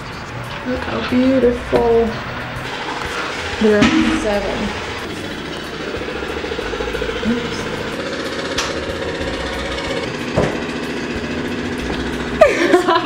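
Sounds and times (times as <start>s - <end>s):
motor humming with pulse: 1.4s - 13.0s
sudden loud sound: 3.6s - 5.2s.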